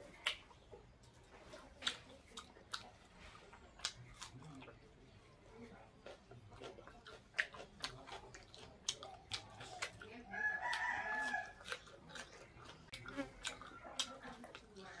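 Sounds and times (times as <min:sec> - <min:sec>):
chewing fried chicken: 0:00.0 - 0:15.0
lip-smacking clicks: 0:00.2 - 0:00.5, 0:06.6 - 0:10.1, 0:11.6 - 0:15.0
rooster crowing: 0:10.3 - 0:11.6.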